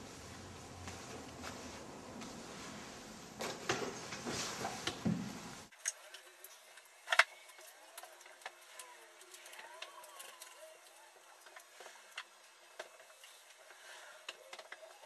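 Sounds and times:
rustling handling noise: 0.0s - 5.7s.

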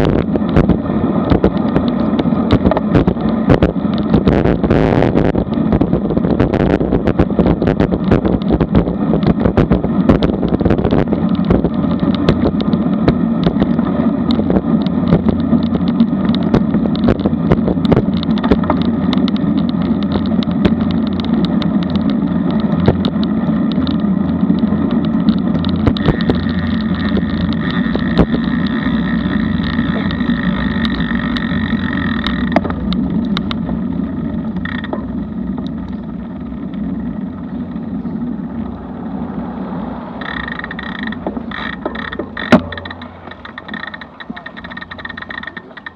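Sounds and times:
small clicks and rattles: 0.0s - 38.9s, 39.5s - 45.9s
bike tyre and road noise: 0.0s - 45.9s
wind on microphone: 0.0s - 45.9s.

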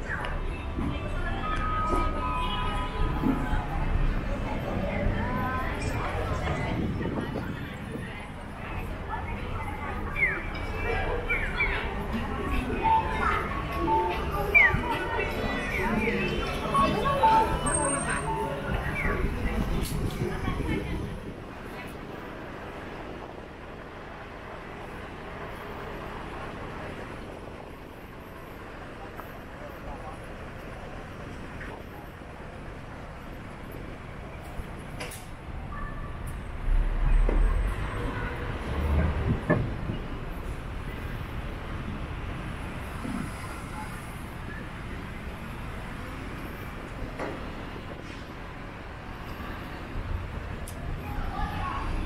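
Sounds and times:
road traffic passing: 0.0s - 52.0s.

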